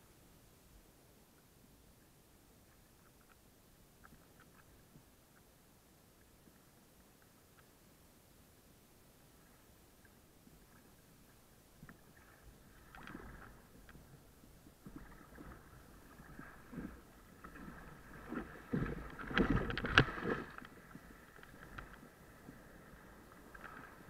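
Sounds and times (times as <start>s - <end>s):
water splashing against kayak: 10.0s - 24.0s.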